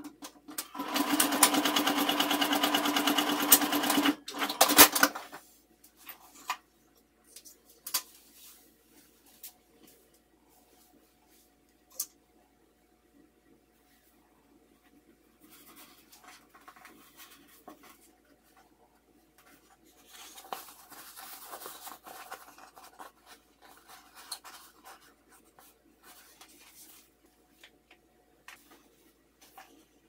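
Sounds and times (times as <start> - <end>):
cloth rustling and rubbing: 8.1 - 11.6, 15.4 - 27.8.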